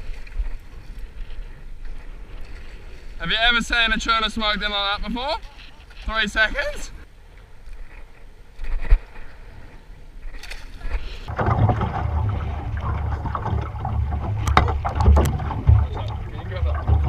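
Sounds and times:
sharp splashes and knocks: 10.3s - 17.0s
water sloshing against boat hull: 10.3s - 17.0s
wind buffeting microphone: 11.3s - 17.0s.

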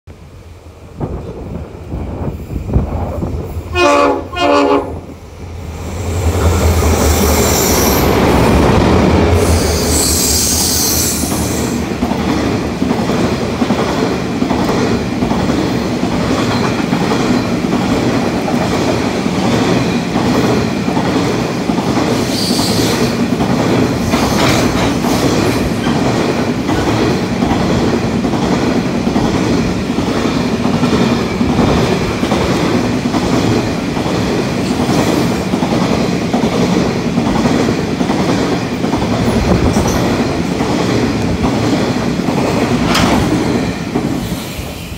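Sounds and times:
freight train rolling past: 0.1s - 44.9s
wheels clicking over rail joints: 23.2s - 44.3s.

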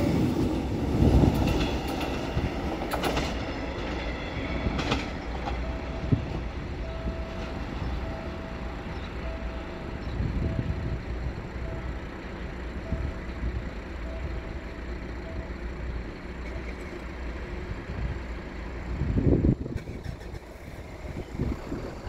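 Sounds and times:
wind buffeting microphone: 0.0s - 11.8s, 17.8s - 22.0s
distant engines rumbling: 0.0s - 22.0s.

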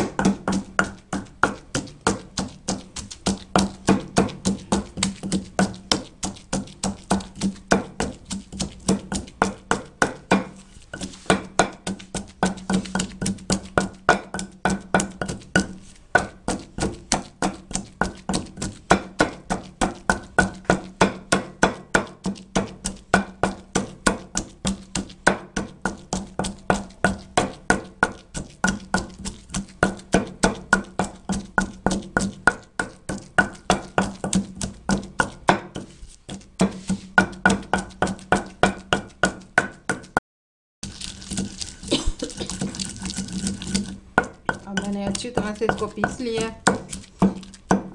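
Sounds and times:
pestle pounding in stone mortar: 0.0s - 40.2s, 40.8s - 47.9s.

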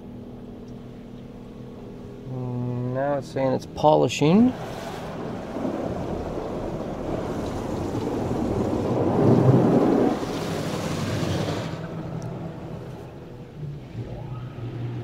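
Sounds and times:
water spray on car roof: 4.4s - 13.1s.

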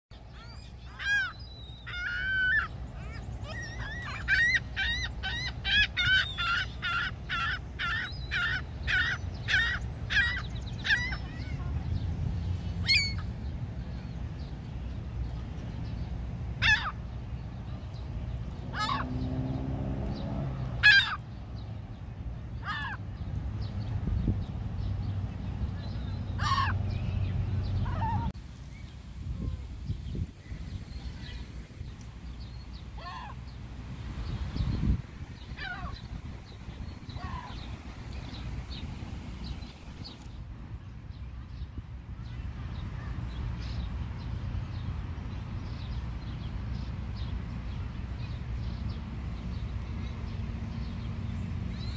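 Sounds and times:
gull calls: 0.4s - 11.6s, 12.8s - 13.2s, 16.6s - 17.0s, 18.7s - 19.1s, 20.8s - 21.2s, 22.6s - 23.0s, 26.4s - 26.8s, 35.6s - 36.0s.

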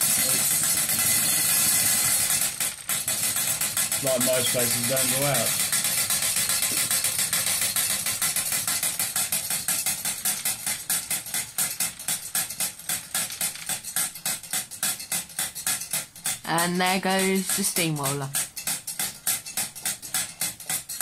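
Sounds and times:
steam hissing: 0.0s - 10.7s
toy steam engine chuffing: 0.0s - 21.0s.

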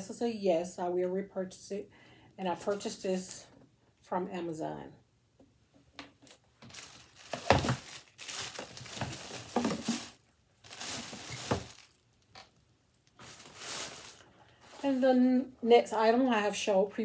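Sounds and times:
bag rustling and crinkling: 6.6s - 15.4s.

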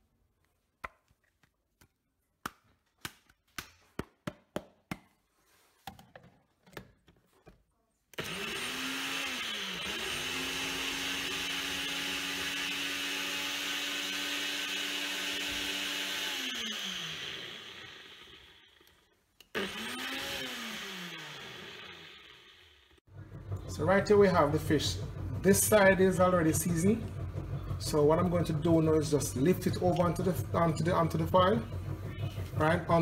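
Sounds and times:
blender motor blending: 8.2s - 23.0s.

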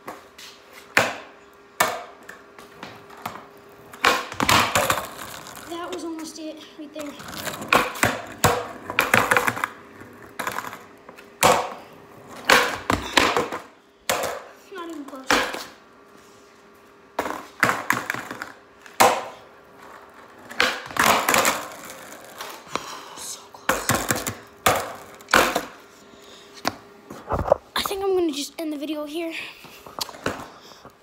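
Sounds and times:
skateboard wheels rolling: 0.0s - 15.8s, 16.7s - 22.8s, 23.7s - 25.9s, 30.1s - 30.6s
skateboard slamming on concrete: 0.9s - 2.2s, 2.8s - 5.7s, 7.2s - 14.5s, 17.2s - 22.5s, 23.7s - 25.8s.

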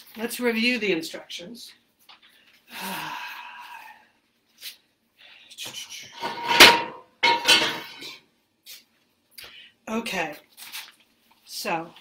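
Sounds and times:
paper rustling: 10.4s - 11.5s.

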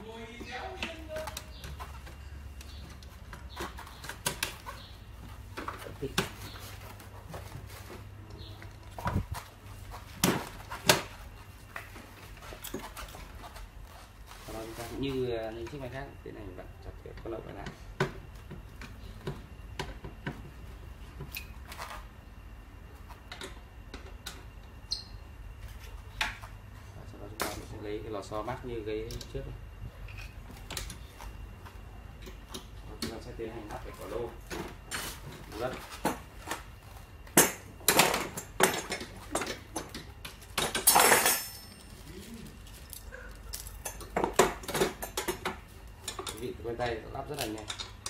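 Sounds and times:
light clicks and knocks of parts: 29.0s - 29.4s, 42.6s - 48.0s
metal tubes clinking and knocking: 37.4s - 42.0s, 47.4s - 48.0s.

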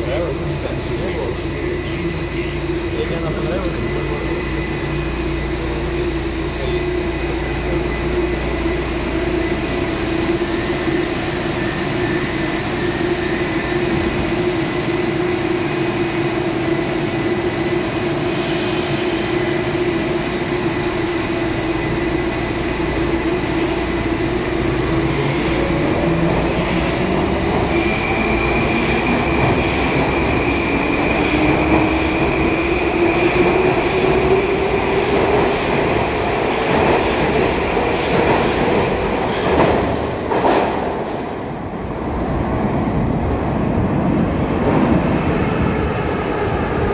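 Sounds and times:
train wheel noise: 0.0s - 41.7s
train electrical hum: 0.0s - 42.0s
train doors closing: 16.6s - 41.8s.

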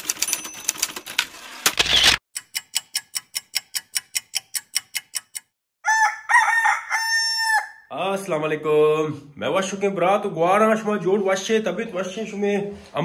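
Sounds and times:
typewriter keys clacking: 0.0s - 2.2s.

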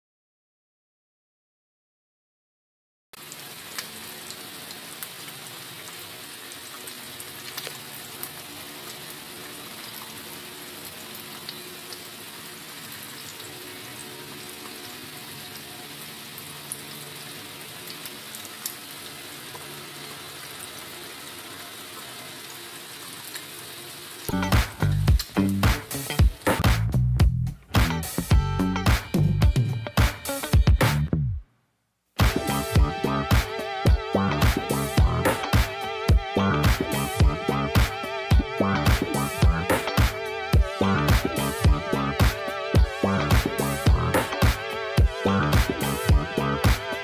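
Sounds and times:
eggs sizzling in hot oil: 3.2s - 27.1s.

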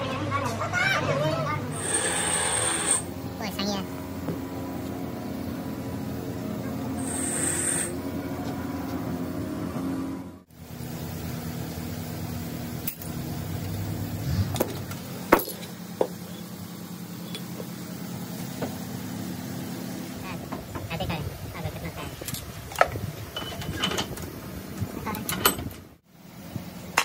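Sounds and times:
low machine hum: 0.0s - 27.0s.

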